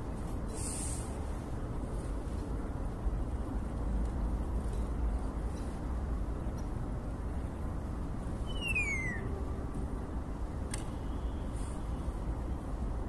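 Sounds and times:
starling falling whistle: 0:08.4 - 0:09.3.

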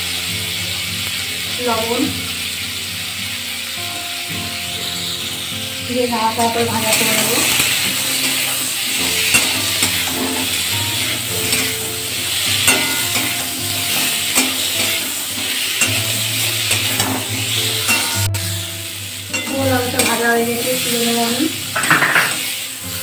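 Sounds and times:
food sizzling in oil: 0:00.0 - 0:23.0
spatula scraping a pan: 0:06.4 - 0:18.5, 0:19.3 - 0:22.7.

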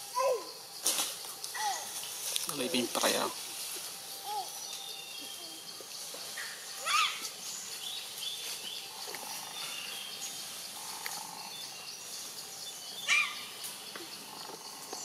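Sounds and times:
birds chirping: 0:00.0 - 0:15.0
insects chirping: 0:00.0 - 0:15.0
high-pitched animal calls: 0:06.4 - 0:07.3, 0:10.8 - 0:11.6, 0:13.0 - 0:13.5.

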